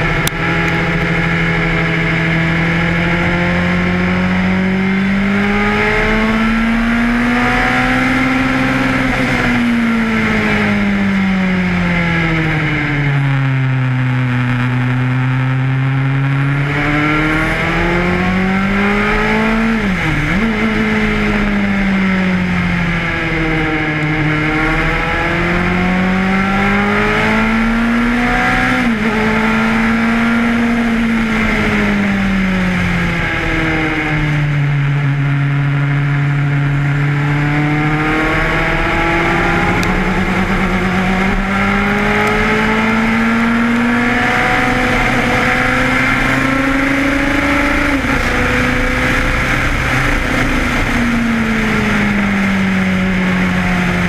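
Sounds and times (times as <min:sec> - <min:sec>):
racing car engine revving: 0:00.0 - 0:54.0.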